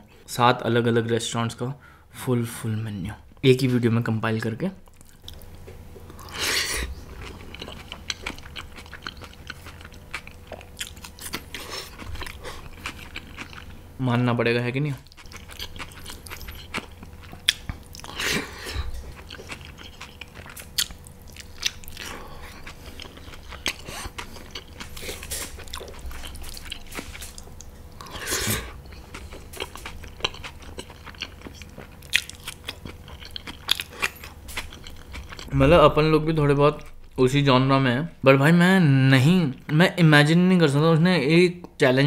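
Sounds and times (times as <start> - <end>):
person chewing: 4.8 - 13.8, 15.0 - 36.2.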